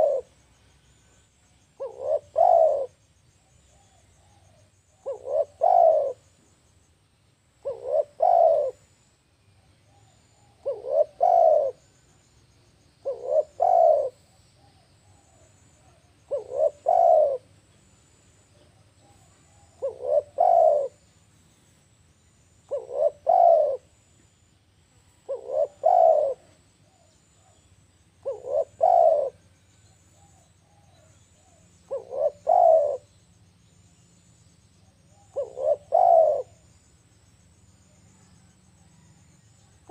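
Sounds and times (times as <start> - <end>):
dove cooing: 0.0 - 0.4, 1.8 - 3.0, 3.7 - 6.3, 7.6 - 8.9, 9.9 - 12.0, 13.0 - 17.6, 18.6 - 21.1, 22.7 - 24.0, 25.2 - 27.6, 28.2 - 33.2, 35.0 - 36.6.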